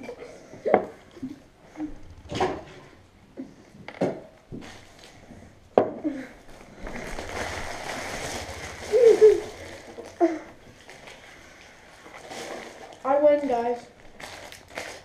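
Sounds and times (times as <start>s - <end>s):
boys laughing: 8.6s - 10.6s.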